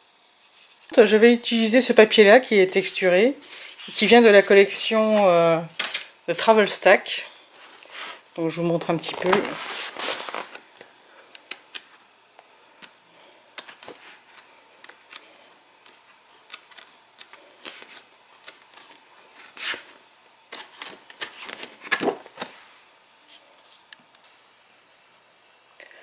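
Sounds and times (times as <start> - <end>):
stiff paper sheets flipping: 2.9 - 6.1, 7.6 - 10.8, 13.6 - 19.9, 20.5 - 22.7
paper swishes: 9.0 - 10.6.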